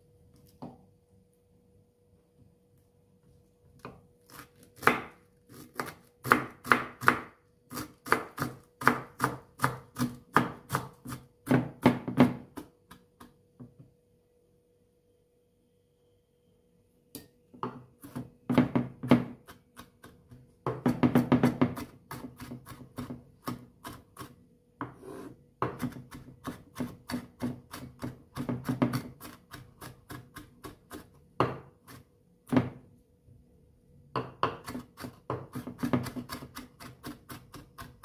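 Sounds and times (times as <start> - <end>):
knife chopping on wooden board: 3.8 - 13.3, 17.2 - 32.8, 34.2 - 38.0.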